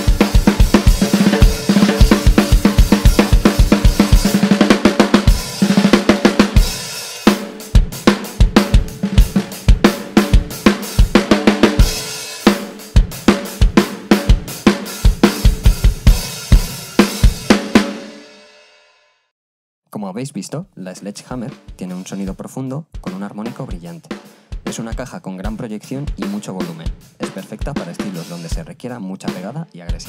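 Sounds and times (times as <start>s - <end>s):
hi-hat and cymbal: 0.0s - 4.6s, 6.5s - 17.6s, 25.5s - 28.7s
snare drum hits: 0.0s - 15.6s.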